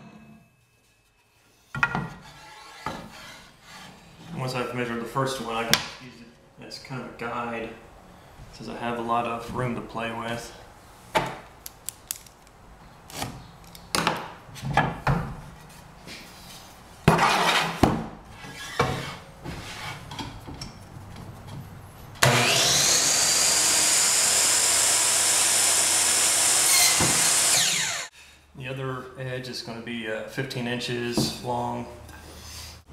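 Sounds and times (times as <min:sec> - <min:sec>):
miter saw whining: 0:22.2 - 0:28.1.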